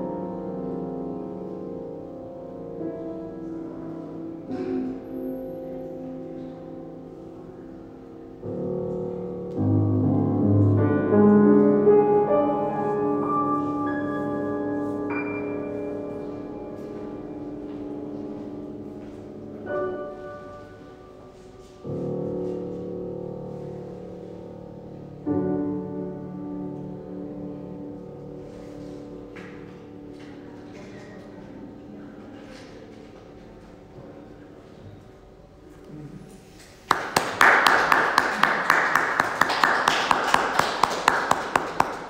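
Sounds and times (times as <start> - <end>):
grand piano chords: 0.0 - 42.0
audience applause: 36.9 - 42.0.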